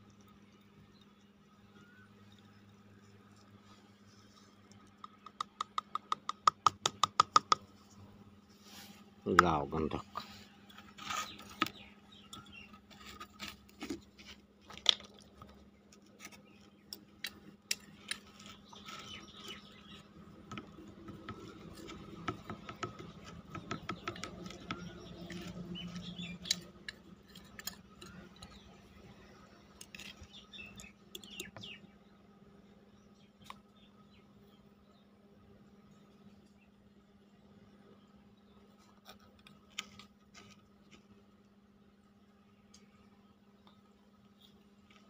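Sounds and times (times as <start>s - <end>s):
steady low hum: 0.0s - 45.0s
clay pot clicking on a plate: 5.0s - 7.6s.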